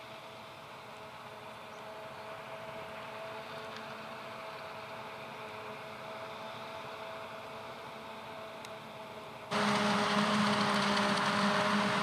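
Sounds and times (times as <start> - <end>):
forage harvester running: 0.1 - 12.0
steady machine whine: 9.5 - 12.0
tractor pulling trailer: 9.5 - 12.0.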